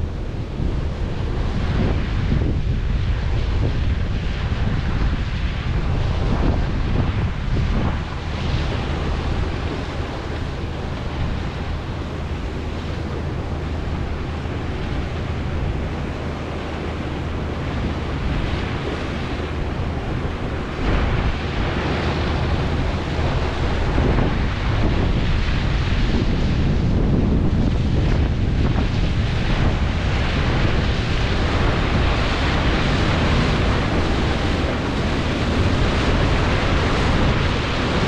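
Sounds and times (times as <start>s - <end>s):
low engine hum: 0.0s - 38.0s
wind buffeting microphone: 0.0s - 38.0s.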